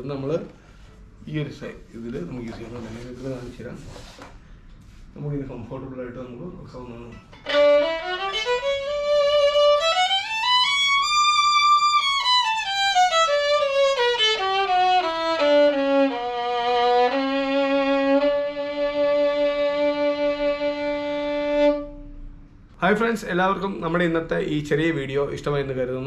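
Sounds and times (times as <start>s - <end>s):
violin playing a scale: 7.4s - 22.1s.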